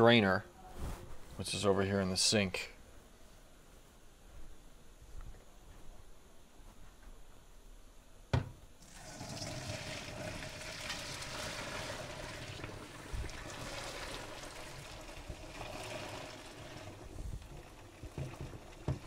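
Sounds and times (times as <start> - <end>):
knock: 8.3 - 8.6
water pouring into a strainer: 8.8 - 19.0.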